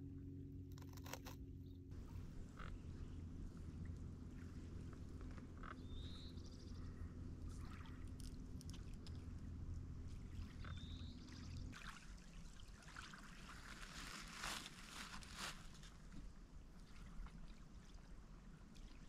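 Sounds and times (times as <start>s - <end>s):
steady low hum: 0.0s - 13.6s.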